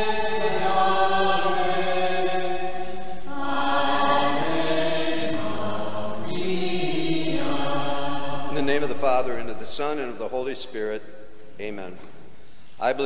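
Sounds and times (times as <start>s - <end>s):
choir singing slow chant: 0.0s - 10.1s.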